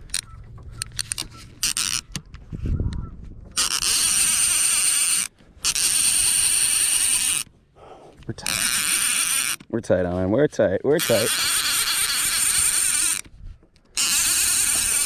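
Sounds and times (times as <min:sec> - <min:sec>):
fishing reel drag buzzing: 0:00.0 - 0:02.2, 0:03.6 - 0:07.5, 0:08.4 - 0:09.7, 0:10.9 - 0:13.3, 0:13.9 - 0:15.0
handling clicks and knocks: 0:00.0 - 0:02.5.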